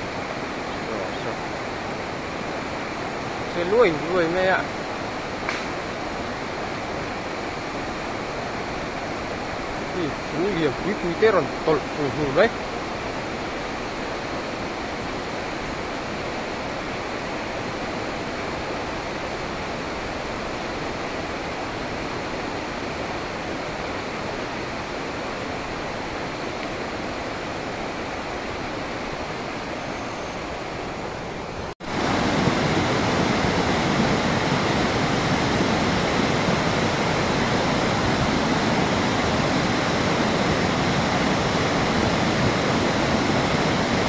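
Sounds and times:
river rushing: 0.0 - 44.0.

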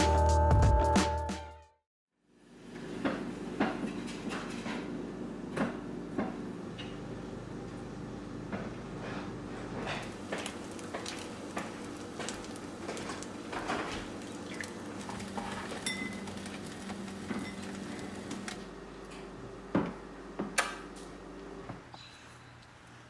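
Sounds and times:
dishes clinking and knocking: 15.4 - 16.3.

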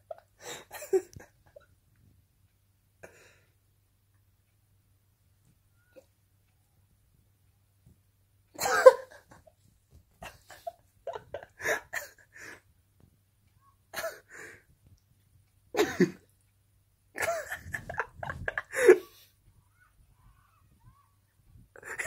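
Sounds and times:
person stifling laughter: 0.0 - 1.7, 8.6 - 9.5, 10.2 - 12.6, 15.8 - 16.2, 17.2 - 19.3, 21.8 - 22.0.

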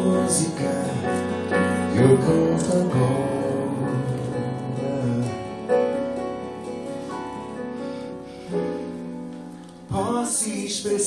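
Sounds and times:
man singing: 0.0 - 5.8, 9.9 - 11.0.

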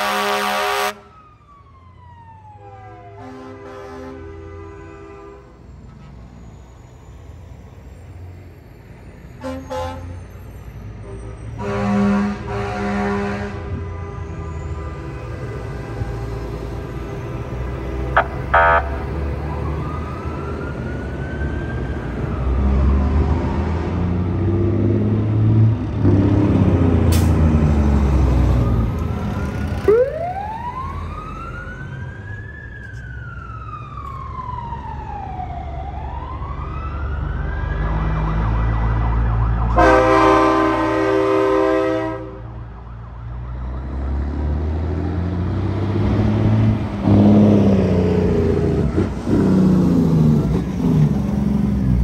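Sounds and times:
air horn blast: 0.0 - 1.0, 3.2 - 5.5, 9.4 - 10.2, 11.6 - 16.1, 18.1 - 19.0, 39.7 - 42.5
siren wailing: 0.0 - 4.0, 12.4 - 25.0, 28.1 - 42.0
truck engines rumbling: 0.0 - 52.0.

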